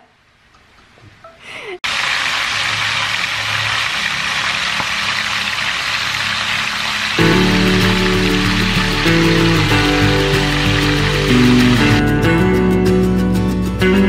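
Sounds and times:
chicken sizzling in lard: 1.8s - 12.0s.

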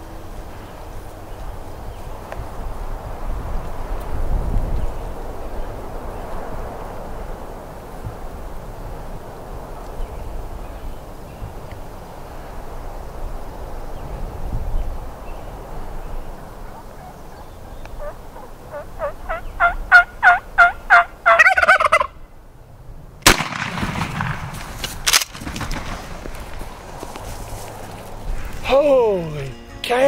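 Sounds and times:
turkey gobble: 16.4s - 22.2s
turkey yelps: 16.4s - 22.2s
shotgun blast: 23.2s - 26.2s
rustling: 23.5s - 28.7s.

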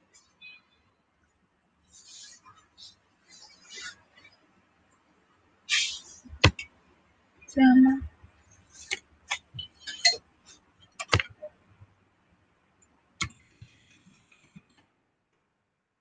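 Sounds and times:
sharp clicks and taps: 11.0s - 11.5s.

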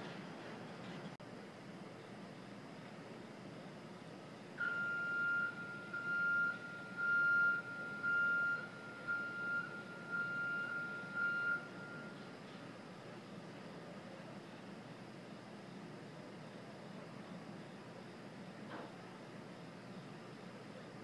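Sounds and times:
high-pitched warning beeps: 4.6s - 12.3s.

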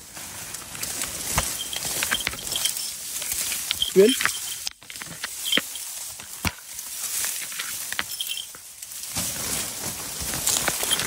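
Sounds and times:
reeds rustling and crackling: 0.0s - 11.0s
stems snapping: 0.4s - 8.1s.

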